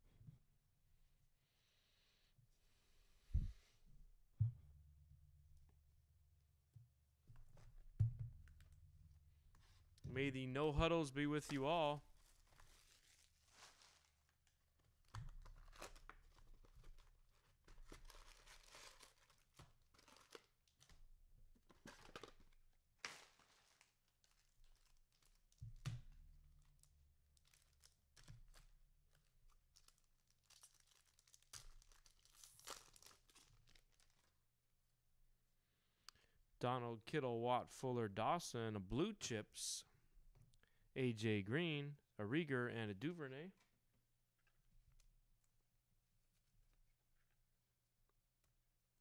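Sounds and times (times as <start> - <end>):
packaging tearing and crinkling: 12.2 - 20.9, 23.0 - 25.6, 26.8 - 34.4.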